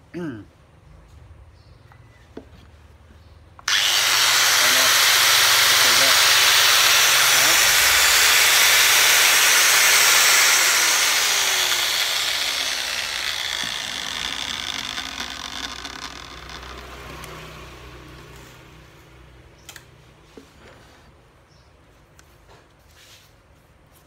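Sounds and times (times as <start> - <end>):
angle grinder whine: 3.7 - 17.3.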